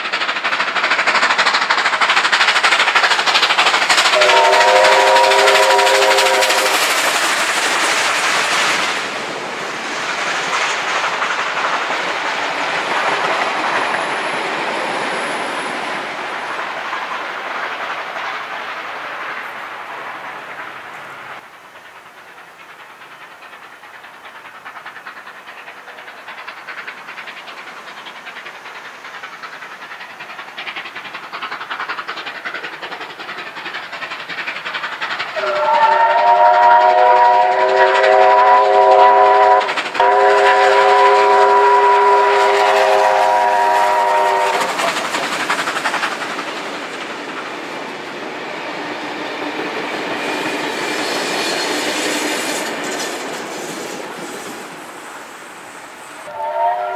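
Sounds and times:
steam locomotive passing: 0:00.0 - 0:56.9
steam locomotive whistle blasts: 0:04.2 - 0:06.8, 0:35.4 - 0:44.7, 0:56.3 - 0:56.9.

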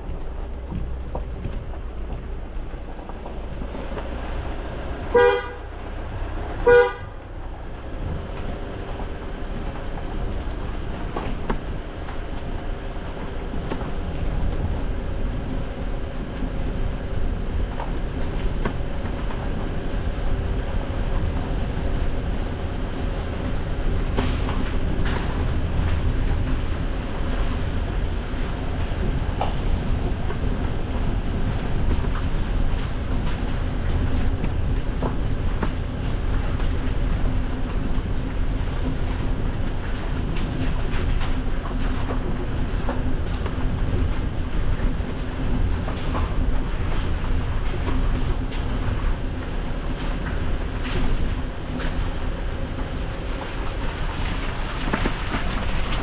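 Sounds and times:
vehicle engine and tyres: 0:00.0 - 0:56.0
car horn toots: 0:05.1 - 0:05.7, 0:06.6 - 0:07.2.

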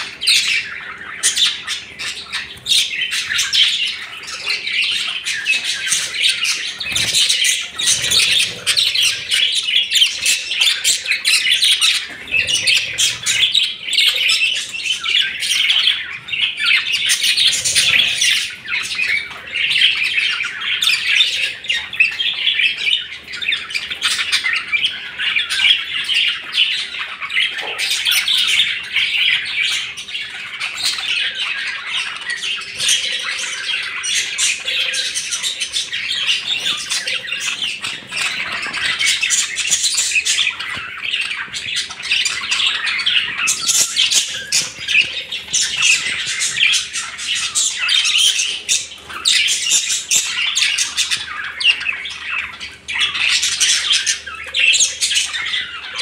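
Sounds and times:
budgerigars chattering: 0:00.0 - 0:56.0.

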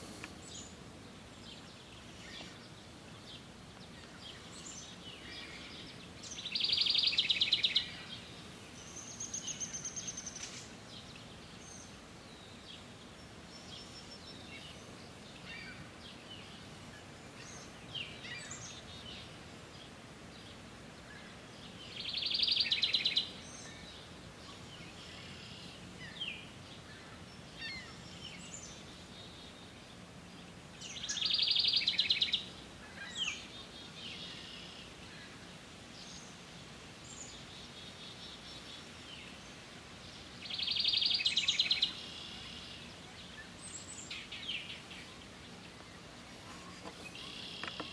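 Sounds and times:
wren singing: 0:00.0 - 0:19.4, 0:21.6 - 0:29.8, 0:30.7 - 0:35.0, 0:37.0 - 0:47.9
faint bird calls: 0:40.4 - 0:47.9.

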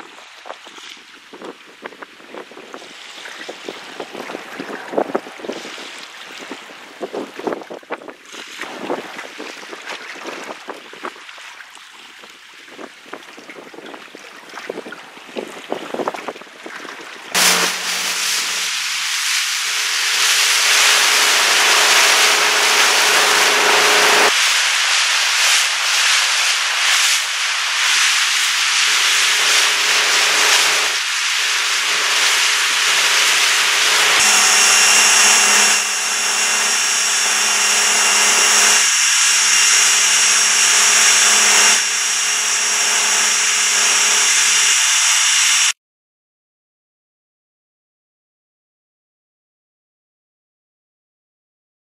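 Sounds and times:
boat engine: 0:17.4 - 0:45.7
high steady whine: 0:17.4 - 0:45.8
rushing water: 0:18.0 - 0:34.1.

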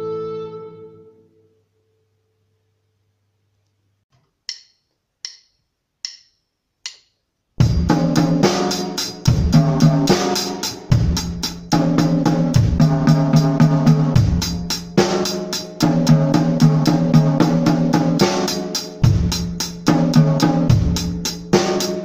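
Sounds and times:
drumstick clicks: 0:04.1 - 0:07.2
drum kit playing: 0:07.6 - 0:22.0.

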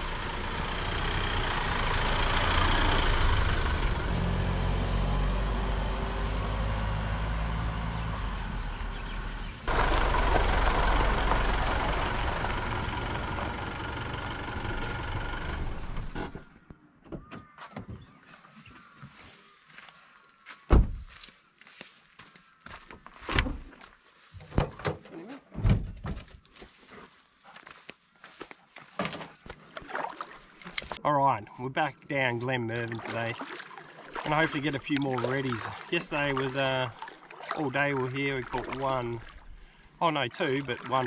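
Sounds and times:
vehicle driving on gravel: 0:00.0 - 0:16.5, 0:34.2 - 0:41.0
car door shutting: 0:20.7 - 0:21.0.

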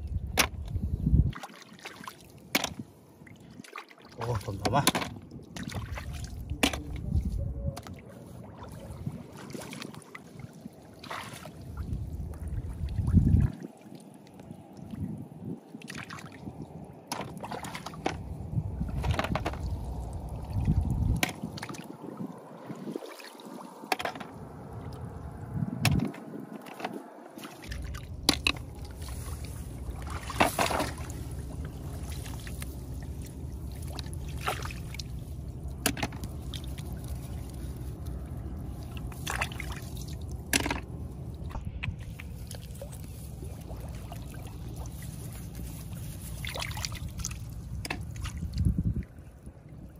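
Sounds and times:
hands splashing in muddy water: 0:07.8 - 0:13.7, 0:27.4 - 0:49.0
low rumble: 0:18.2 - 0:22.5, 0:24.2 - 0:49.9.

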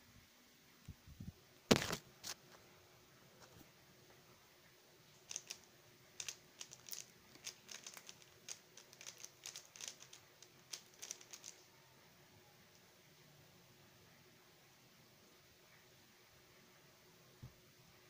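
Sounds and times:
speedcube clicking: 0:05.3 - 0:11.6.

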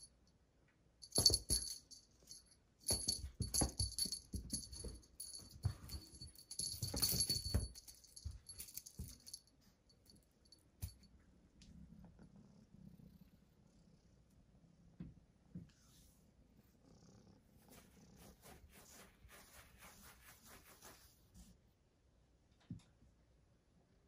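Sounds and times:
cat toy jingling and rattling: 0:01.0 - 0:09.5.

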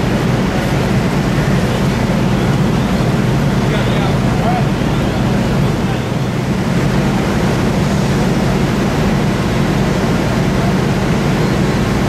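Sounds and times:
fire rumbling and hissing: 0:00.0 - 0:12.0.

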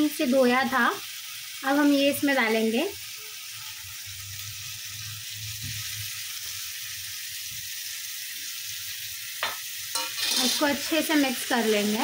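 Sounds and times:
meat sizzling in a frying pan: 0:00.0 - 0:12.0.

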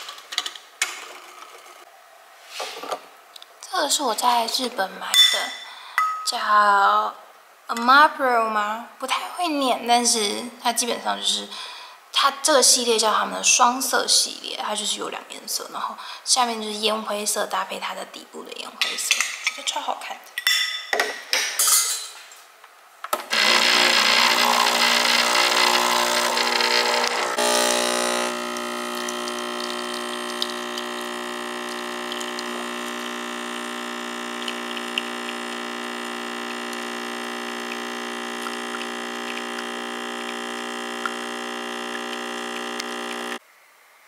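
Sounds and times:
espresso machine pump humming: 0:23.3 - 0:43.4.

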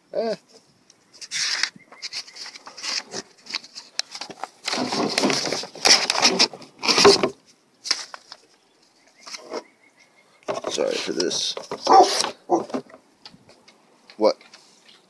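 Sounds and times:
paper sheets rustling: 0:01.2 - 0:08.5.

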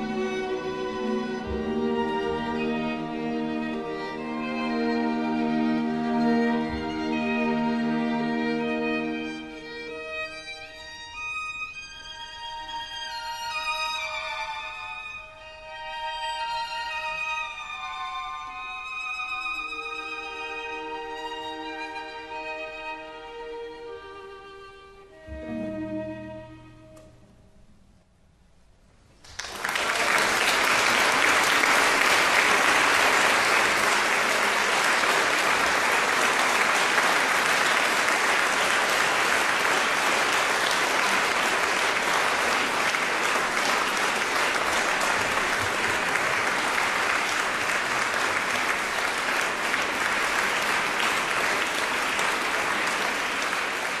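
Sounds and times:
violin and string ensemble chord: 0:00.0 - 0:27.1
audience applauding: 0:29.2 - 0:54.0.

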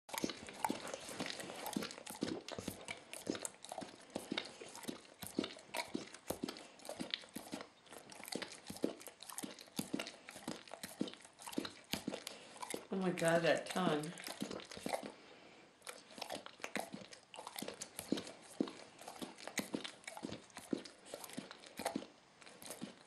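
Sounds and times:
dog licking its chops: 0:00.1 - 0:23.0.

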